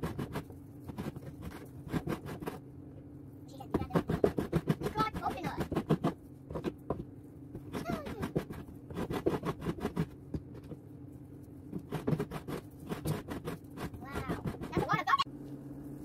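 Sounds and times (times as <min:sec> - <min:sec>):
coconut grater rasping: 0:00.0 - 0:02.6, 0:03.7 - 0:07.0, 0:07.6 - 0:10.7, 0:11.7 - 0:15.3.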